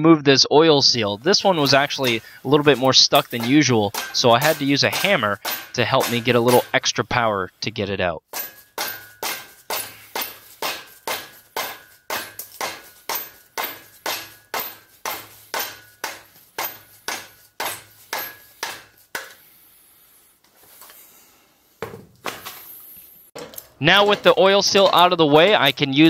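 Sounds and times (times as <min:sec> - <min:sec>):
hammer blows on metal: 0:01.1 - 0:07.4, 0:08.3 - 0:19.4.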